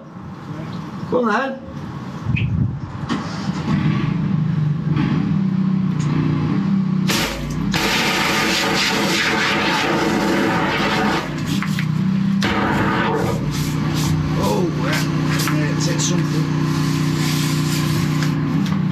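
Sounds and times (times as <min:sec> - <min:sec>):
engine running under load: 0:01.8 - 0:18.9
high-pressure water rushing: 0:07.1 - 0:18.4.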